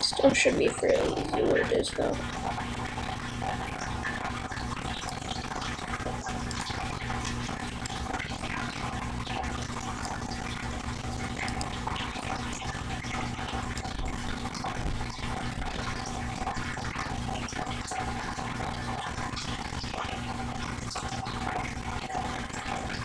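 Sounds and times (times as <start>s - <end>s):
low even hum: 0.0s - 23.0s.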